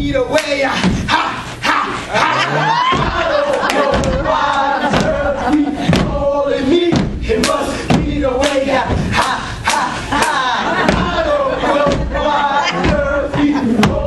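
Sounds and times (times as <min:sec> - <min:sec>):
shouted chanting: 0:01.1 - 0:05.5
crowd cheering: 0:02.1 - 0:05.1
stomping: 0:02.8 - 0:14.0.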